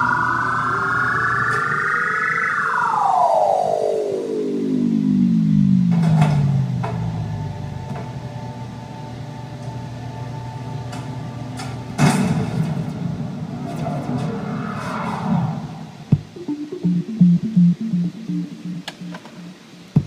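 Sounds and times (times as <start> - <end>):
falling synthesized tone: 0.0 - 10.8, 14.2 - 20.0
low electronic hum: 0.0 - 12.3, 16.0 - 20.0.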